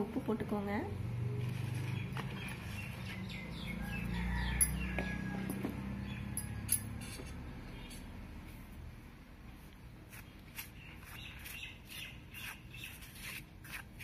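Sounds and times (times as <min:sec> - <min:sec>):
birds chirping: 0:01.2 - 0:07.0, 0:10.3 - 0:13.1.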